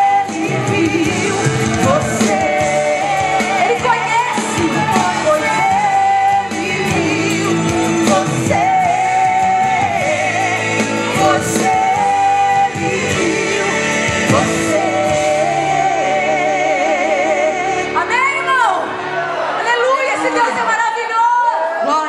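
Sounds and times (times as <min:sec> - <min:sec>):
woman singing gospel: 0:00.0 - 0:18.8
musical accompaniment: 0:00.0 - 0:20.8.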